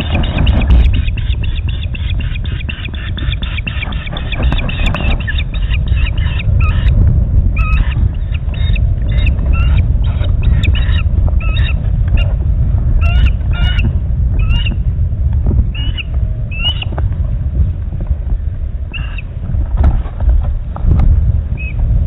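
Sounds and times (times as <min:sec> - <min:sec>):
ospreys chirping: 0:00.0 - 0:14.8, 0:15.7 - 0:17.0, 0:18.9 - 0:19.4, 0:21.5 - 0:21.8
steady low rumble: 0:00.0 - 0:22.0.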